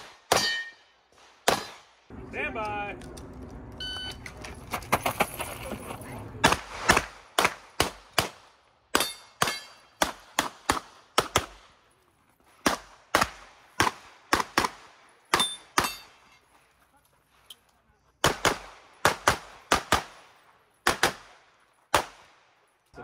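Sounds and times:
pistol shots: 0:00.0 - 0:02.0, 0:06.4 - 0:11.7, 0:12.6 - 0:16.1, 0:18.2 - 0:22.4.

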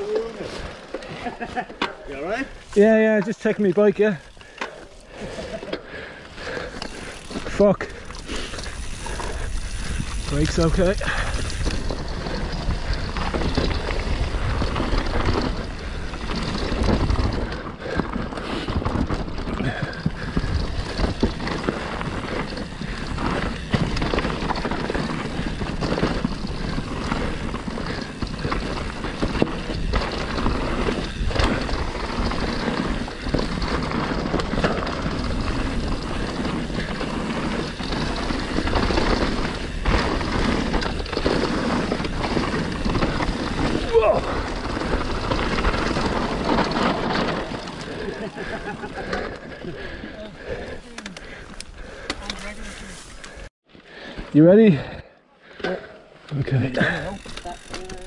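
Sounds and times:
bike tyres rolling on dirt: 0:00.0 - 0:55.1, 0:55.8 - 0:58.0
chain and frame rattling: 0:06.4 - 0:49.9, 0:56.5 - 0:58.0
wind rumbling on microphone: 0:08.4 - 0:48.6.

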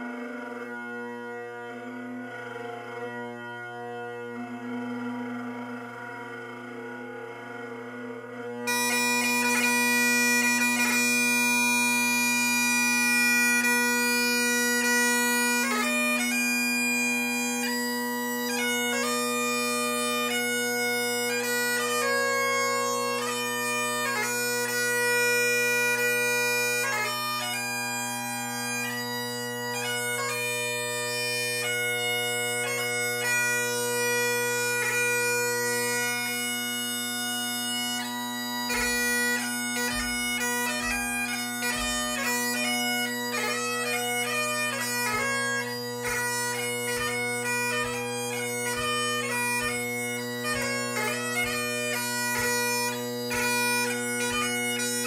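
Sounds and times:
bagpipe playing: 0:00.0 - 0:55.0.

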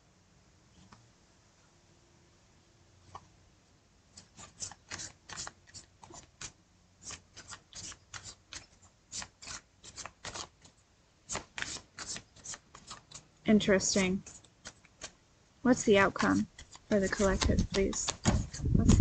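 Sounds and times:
cards being shuffled by hand: 0:04.1 - 0:19.0.

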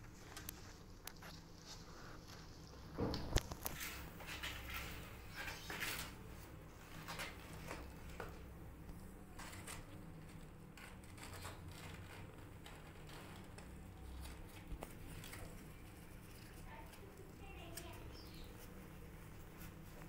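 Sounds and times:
kittens rustling on cardboard: 0:00.0 - 0:20.0.

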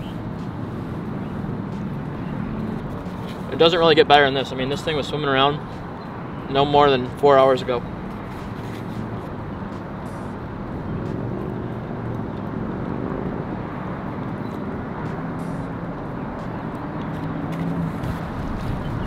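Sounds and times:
distant road traffic hum: 0:00.0 - 0:19.0.

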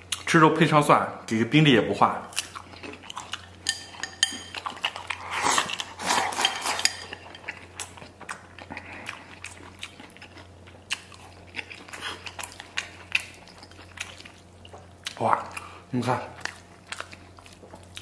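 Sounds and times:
man chewing food: 0:00.0 - 0:00.3, 0:02.3 - 0:18.0
chopsticks tapping a bowl: 0:03.7 - 0:04.6.

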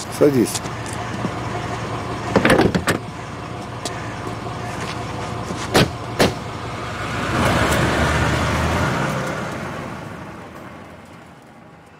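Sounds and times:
car pulling away: 0:00.0 - 0:11.9
car doors slamming: 0:05.6 - 0:06.5.

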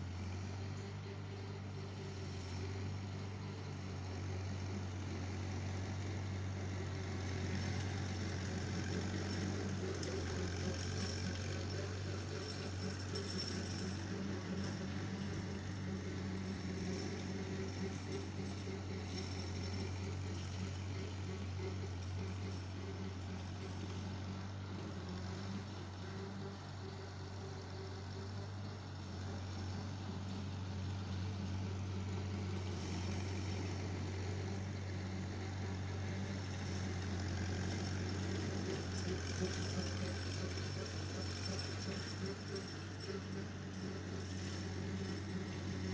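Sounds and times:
tractor engine running: 0:00.0 - 0:45.9.

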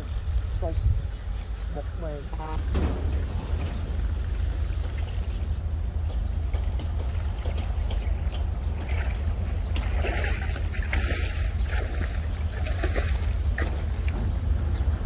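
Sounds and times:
wind buffeting microphone: 0:00.0 - 0:15.0
lake water lapping: 0:03.3 - 0:15.0.

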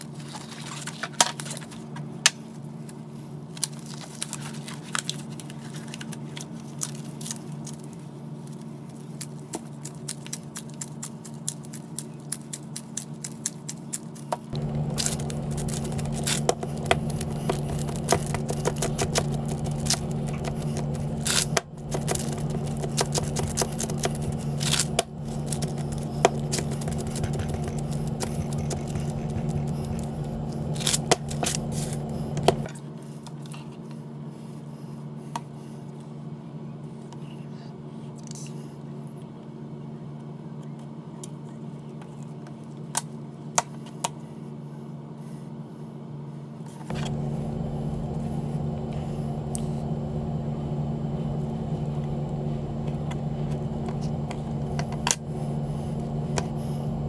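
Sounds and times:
wax paper crinkling: 0:00.0 - 0:33.5, 0:46.9 - 0:57.0
steady low hum: 0:00.0 - 0:57.0
gloved hands working clay: 0:03.6 - 0:32.7, 0:46.9 - 0:57.0.

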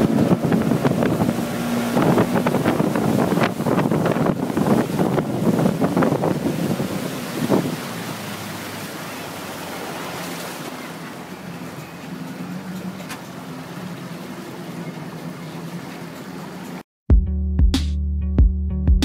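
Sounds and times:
wind on microphone: 0:00.0 - 0:08.5
faint boat engine hum: 0:00.0 - 0:16.8
churning wake water: 0:00.0 - 0:16.9.

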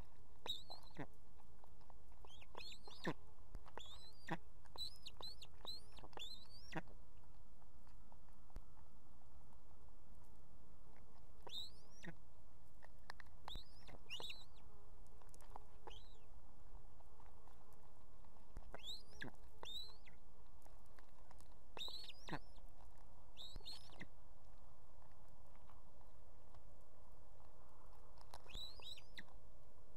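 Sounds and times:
ospreys chirping: 0:00.4 - 0:01.1, 0:02.2 - 0:06.9, 0:11.4 - 0:12.2, 0:13.5 - 0:14.6, 0:15.8 - 0:16.3, 0:18.7 - 0:20.2, 0:21.8 - 0:22.6, 0:23.4 - 0:24.1, 0:28.4 - 0:29.3.

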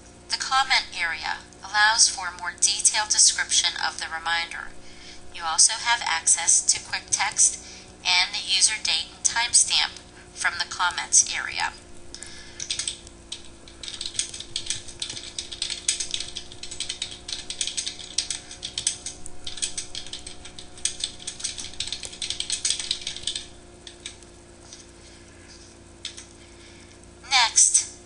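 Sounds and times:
faint hum: 0:00.0 - 0:28.0
keyboard typing: 0:12.2 - 0:26.4.

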